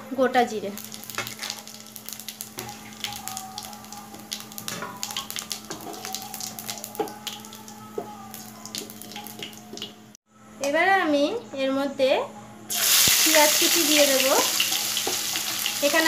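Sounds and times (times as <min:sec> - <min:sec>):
spices sizzling in oil: 0:00.5 - 0:07.7, 0:08.3 - 0:10.0, 0:12.7 - 0:16.0.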